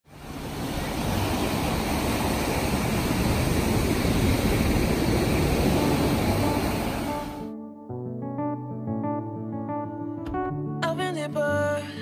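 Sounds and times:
waves breaking on beach: 0.0s - 7.4s.

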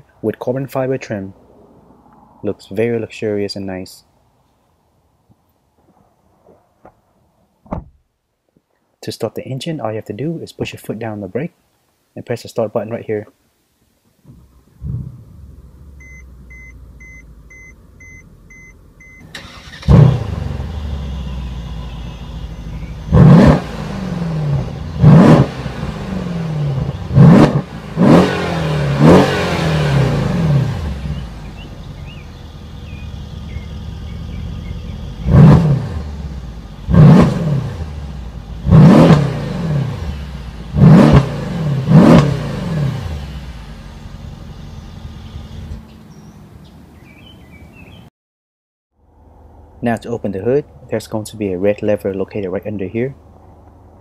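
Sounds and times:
car engine starting: 14.2s - 47.8s
car engine revving: 14.8s - 17.7s, 19.2s - 45.8s
electronic beeps: 16.0s - 19.3s.

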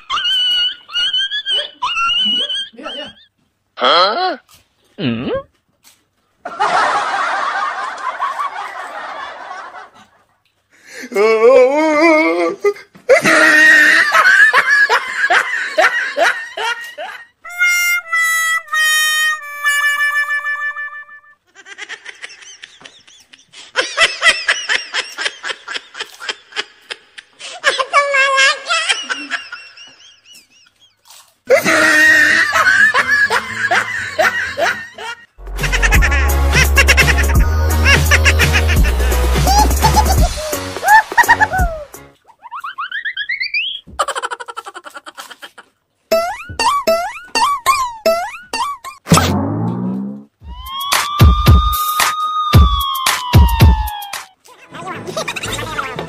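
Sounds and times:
person laughing: 0.0s - 4.2s, 11.1s - 17.3s, 21.5s - 30.8s, 31.5s - 45.8s, 52.6s - 54.4s.

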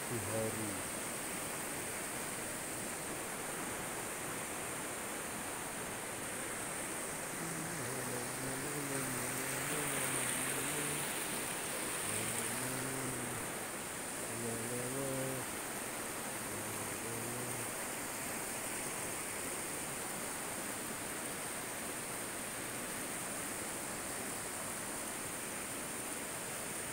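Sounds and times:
man humming: 0.0s - 0.8s, 7.3s - 15.5s, 16.3s - 17.8s
river rushing: 0.0s - 26.9s.

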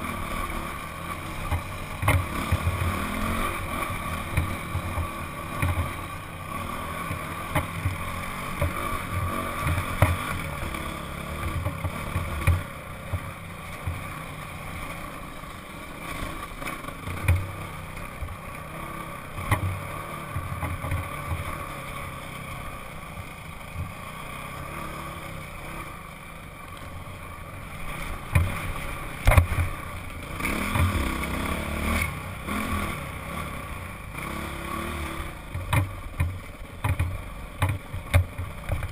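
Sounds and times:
dirt bike engine running: 0.0s - 38.9s
thumps from trail bumps: 1.3s - 6.3s, 7.0s - 14.1s, 16.2s - 18.4s, 19.4s - 21.7s, 28.1s - 32.0s, 35.4s - 38.9s.

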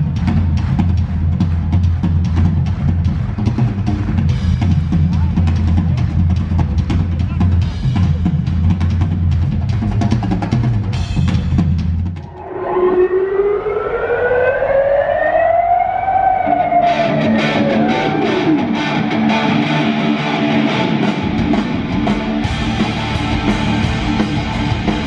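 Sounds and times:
rock drum solo: 0.0s - 12.3s, 17.1s - 25.0s
wailing siren-like tone: 12.3s - 18.7s.

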